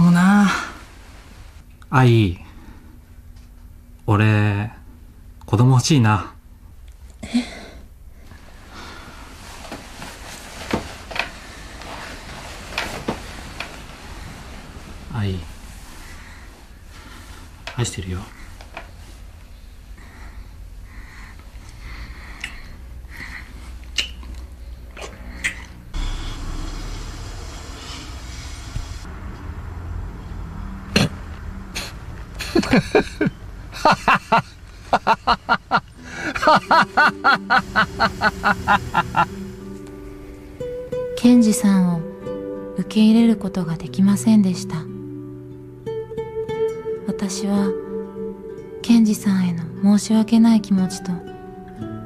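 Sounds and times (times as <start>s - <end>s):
bed covers rustling: 0.0s - 1.7s, 8.3s - 17.6s, 32.4s - 40.7s
breathy chuckles: 32.4s - 39.3s.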